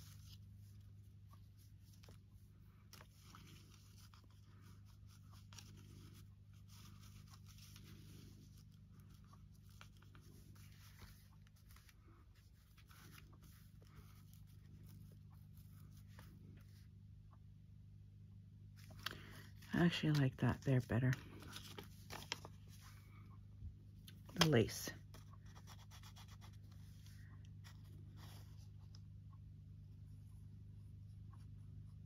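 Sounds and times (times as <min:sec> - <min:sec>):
paper and lace rustling: 0:00.0 - 0:17.0, 0:18.7 - 0:23.3, 0:24.1 - 0:32.0
steady low hum: 0:00.0 - 0:32.0.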